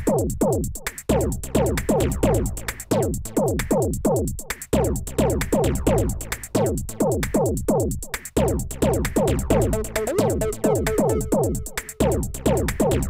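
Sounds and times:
drum machine beat: 0:00.0 - 0:13.0
held synth tones: 0:09.7 - 0:12.0
falling pitch sweeps: 0:09.8 - 0:11.7.

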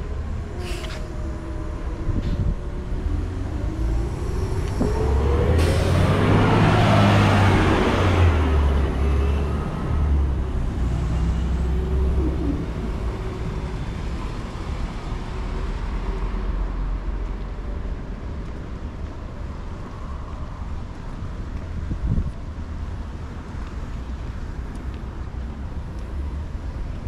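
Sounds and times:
traffic noise: 0:00.0 - 0:27.0
vehicle engine rumbling: 0:00.0 - 0:27.0.

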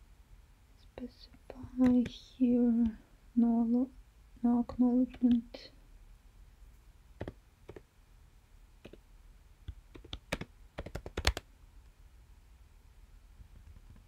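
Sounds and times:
typing on computer keyboard: 0:09.7 - 0:11.4.

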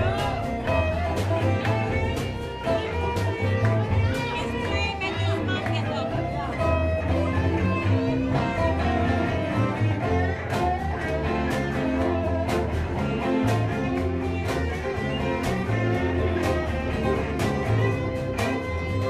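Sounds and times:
live band playing: 0:00.0 - 0:19.0.

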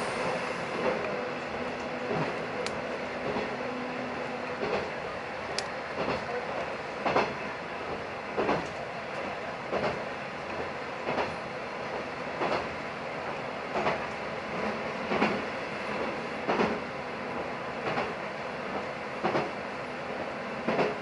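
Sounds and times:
railcar running rumble: 0:00.0 - 0:21.0
train wheels clacking over rail joints: 0:04.5 - 0:11.4, 0:12.4 - 0:12.7, 0:13.7 - 0:16.8, 0:17.8 - 0:19.6, 0:20.6 - 0:21.0.

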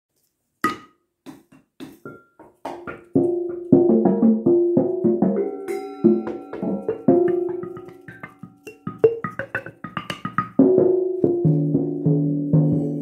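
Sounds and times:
dry taps on metal pots: 0:00.6 - 0:11.7
ringing metallic notes: 0:05.1 - 0:13.0.

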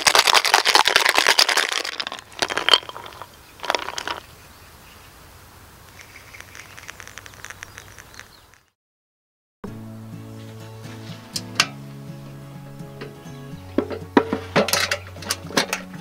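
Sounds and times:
ice rattling in cocktail shaker: 0:00.0 - 0:04.2, 0:06.0 - 0:08.3.

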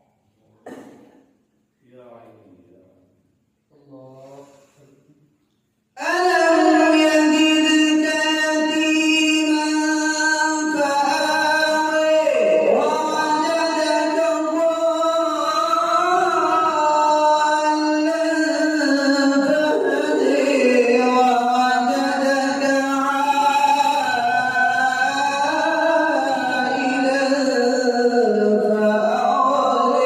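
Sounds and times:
man reciting melodically: 0:06.0 - 0:30.0.

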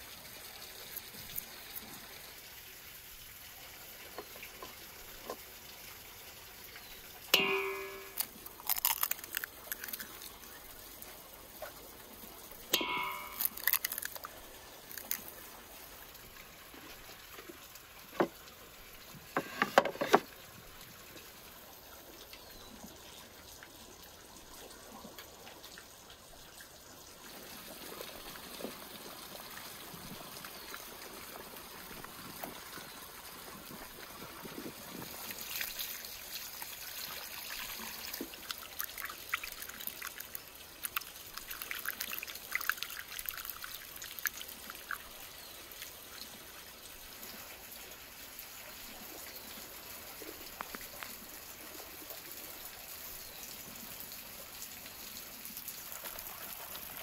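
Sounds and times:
water trickling: 0:00.0 - 0:57.0
eggs knocking on steel bowl: 0:07.4 - 0:08.2, 0:12.8 - 0:13.7.

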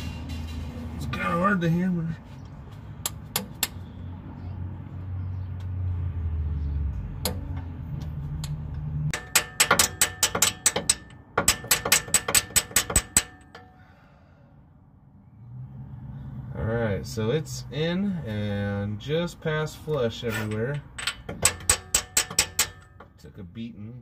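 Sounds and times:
hammer striking metal: 0:09.1 - 0:13.8, 0:20.4 - 0:23.2.

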